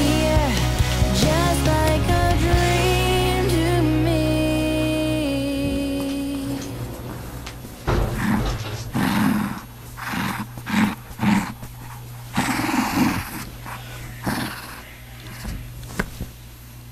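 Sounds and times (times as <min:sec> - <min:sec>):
puppy growling: 0:05.6 - 0:15.8.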